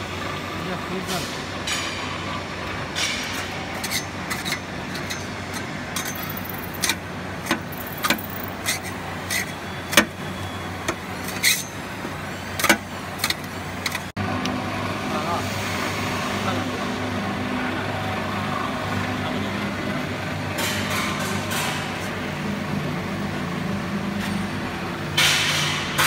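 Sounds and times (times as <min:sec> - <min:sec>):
roaster machine humming: 0:13.7 - 0:25.1.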